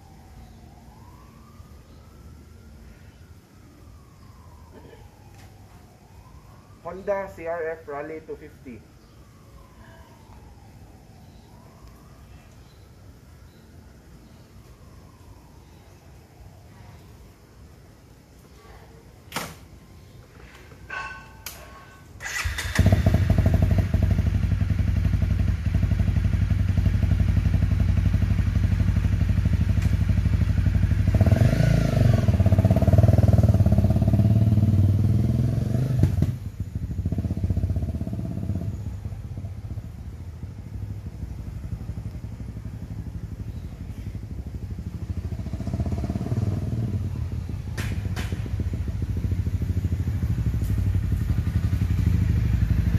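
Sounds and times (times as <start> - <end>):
motorcycle engine idling and revving: 20.9 - 52.9.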